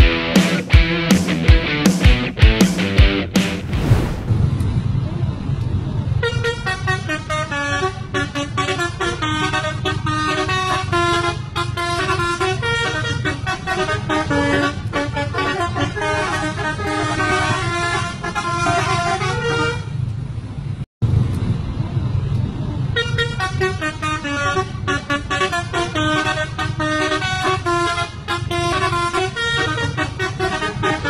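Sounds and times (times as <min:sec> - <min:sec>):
bus engines rumbling: 0:04.4 - 0:31.0
musical bus air horns: 0:06.2 - 0:20.1, 0:23.0 - 0:31.0.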